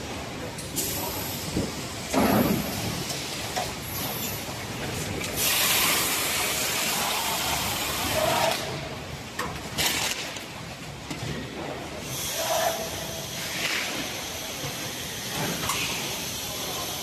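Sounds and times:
loud air hiss: 5.4 - 8.5, 12.0 - 17.0.

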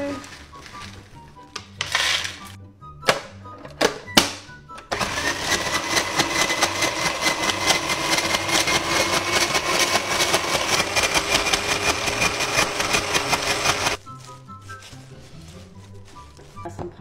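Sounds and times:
ice shaver motor whine: 4.9 - 14.0
ice crunching: 5.0 - 16.7.

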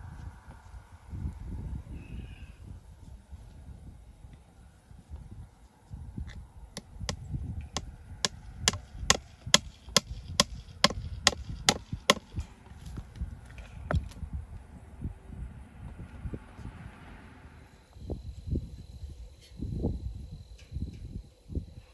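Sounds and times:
hammer striking wooden post: 6.8 - 12.4.

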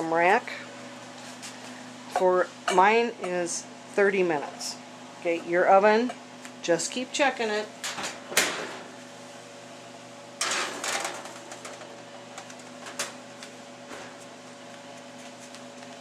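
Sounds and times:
steady electrical hum: 0.0 - 16.0
oven door shutting: 7.8 - 8.9, 10.4 - 13.2
metal baking sheet clattering: 10.4 - 11.8.

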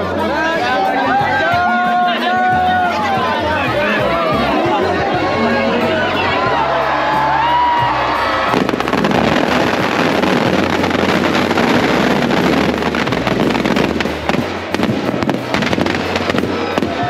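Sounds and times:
steady low bass: 2.6 - 17.0
firecrackers crackling and popping: 8.4 - 17.0.

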